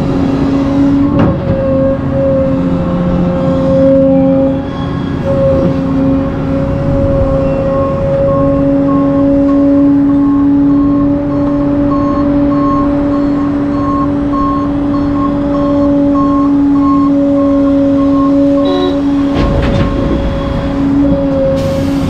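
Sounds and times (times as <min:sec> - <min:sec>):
construction equipment whine: 0:00.0 - 0:22.0
backup alarm beeping: 0:04.1 - 0:22.0.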